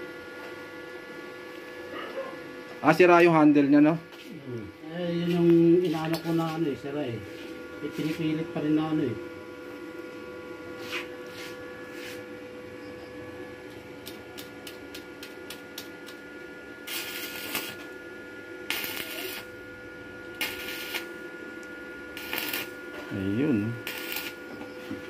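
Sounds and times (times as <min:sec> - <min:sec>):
welding arc burning: 0:13.6 - 0:24.9.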